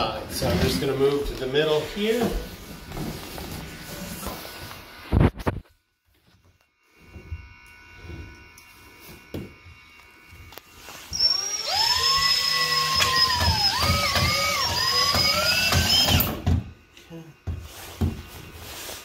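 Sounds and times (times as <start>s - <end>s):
drill motor whine: 6.5s - 17.0s.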